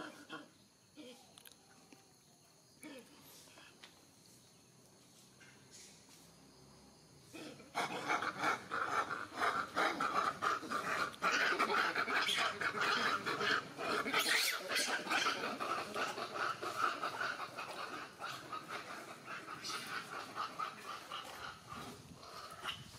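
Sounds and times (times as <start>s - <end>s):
monkeys screaming in a fight: 7.7s - 22.9s.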